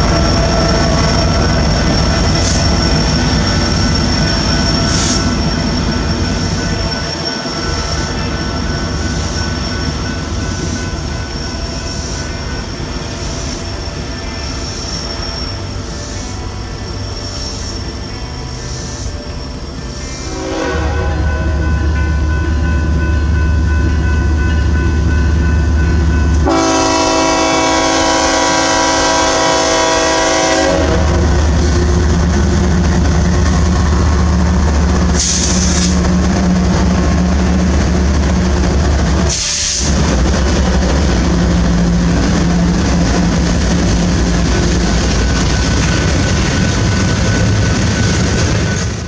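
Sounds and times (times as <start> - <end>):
diesel locomotives droning: 0.0 - 49.0
train wheels on rails: 0.0 - 49.0
train horn blast: 20.1 - 22.0, 26.4 - 36.7.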